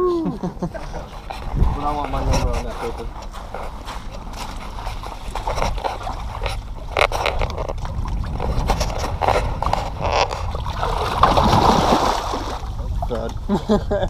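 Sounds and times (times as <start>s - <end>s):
water sloshing and splashing: 0.7s - 13.5s
fish splashing: 4.1s - 13.0s.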